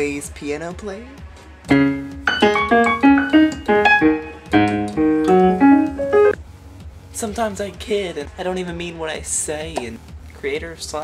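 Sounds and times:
electronic keyboard piano notes: 1.7 - 6.4.

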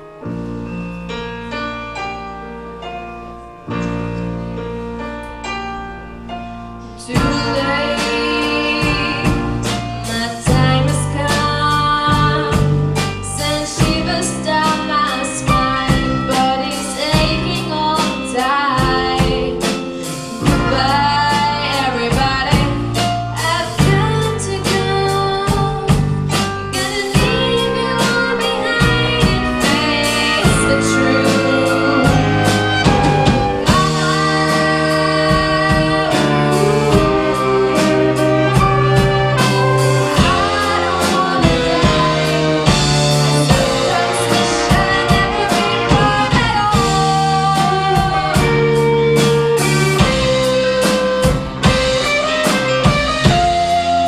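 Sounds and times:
bass line: 0.0 - 54.0
live band playing: 0.0 - 54.0
lead singer singing: 6.9 - 51.1
drum beat: 28.8 - 47.4.

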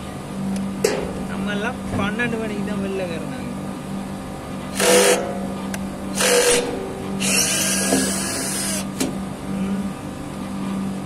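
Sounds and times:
steady low hum: 0.0 - 11.0
cordless drill running: 4.7 - 5.2, 6.1 - 9.0
drill click: 4.7 - 5.2, 6.1 - 9.1.

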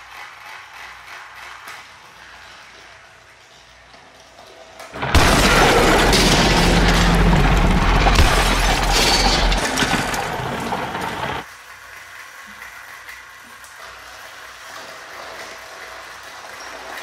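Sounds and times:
loud shattering crash: 5.0 - 11.4.

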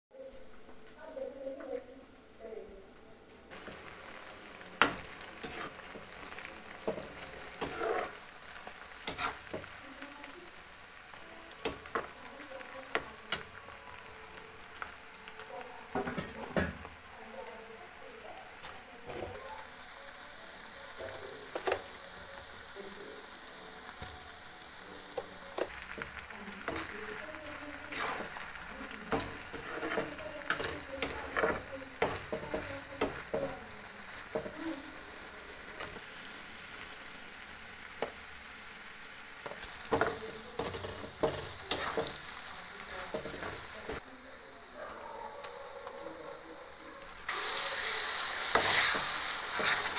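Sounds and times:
onions sizzling in hot oil: 3.5 - 49.9
spatula scraping and clinking on pan: 4.8 - 9.8, 11.6 - 12.2, 25.1 - 34.6, 39.4 - 44.0, 47.3 - 49.9.

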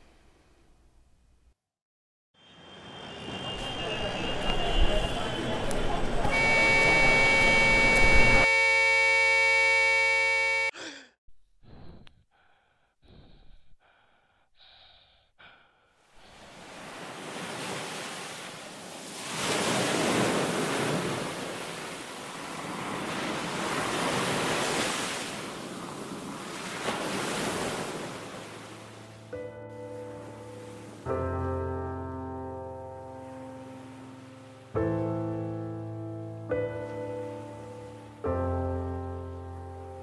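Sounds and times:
steady held tone: 6.3 - 10.8
waves washing on a beach: 16.2 - 31.7, 36.6 - 40.0.

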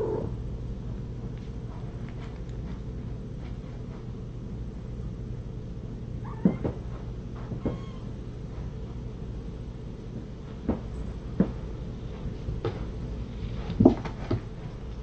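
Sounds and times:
steady low hum: 0.0 - 15.0
knocks and thumps: 6.4 - 7.9.

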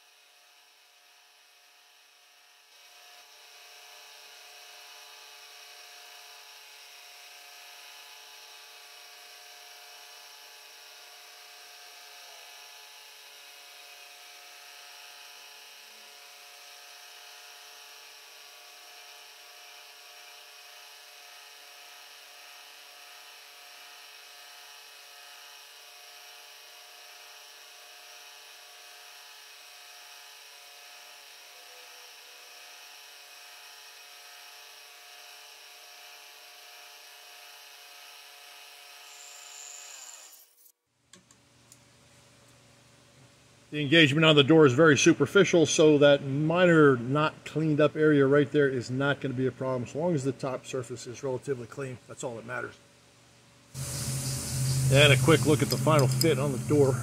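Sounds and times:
milling machine whine: 39.0 - 40.7, 53.8 - 57.0.

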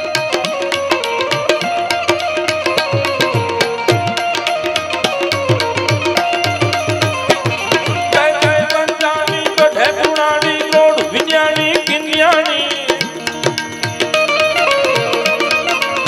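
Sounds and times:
harmonium chords: 0.0 - 16.0
tabla beat: 0.0 - 16.0
man singing wordless phrase: 8.1 - 13.1.

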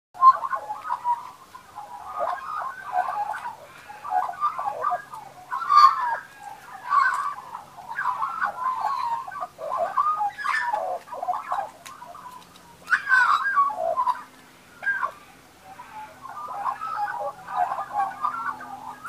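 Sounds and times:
magpies calling: 0.2 - 19.0.

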